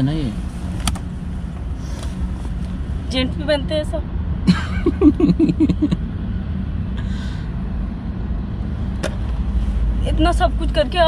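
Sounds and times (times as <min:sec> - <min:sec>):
car cabin rumble: 0:00.6 - 0:06.0
man laughing: 0:04.5 - 0:06.0.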